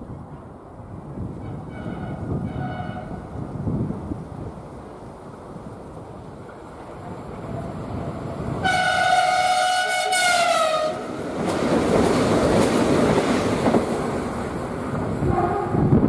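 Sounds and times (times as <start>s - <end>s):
train rushing past: 0.2s - 16.0s
train horn blast: 1.4s - 3.2s, 8.6s - 11.1s
wheels clattering over rail joints: 10.2s - 15.9s.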